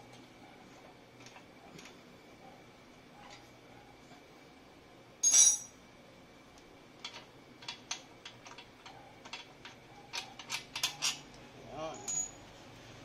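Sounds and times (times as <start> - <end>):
metal tools scraping: 10.1 - 11.3, 11.9 - 12.4.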